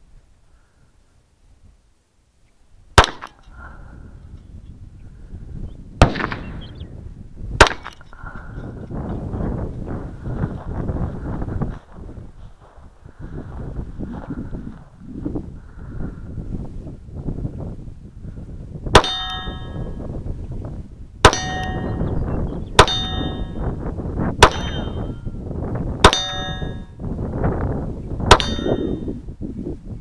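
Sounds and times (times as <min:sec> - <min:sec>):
pistol shots: 0:03.0 - 0:03.4, 0:06.0 - 0:06.6, 0:07.6 - 0:08.0
steel plate target ringing: 0:19.0 - 0:20.0, 0:21.2 - 0:22.2, 0:22.8 - 0:23.8, 0:24.4 - 0:25.4, 0:26.0 - 0:27.0, 0:28.3 - 0:29.1.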